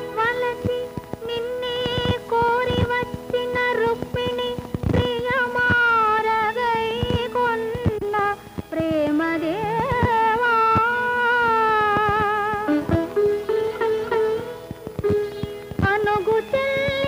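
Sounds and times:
film song melody: 0:12.5 - 0:16.5.

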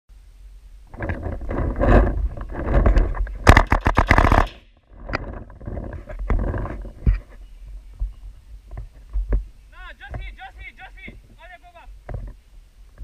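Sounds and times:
paintball marker rapid firing: 0:03.5 - 0:04.6.

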